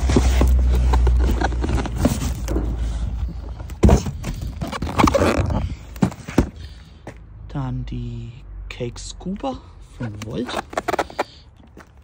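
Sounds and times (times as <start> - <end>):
cardboard boxes scraping and knocking: 0.0 - 6.6, 10.4 - 12.0.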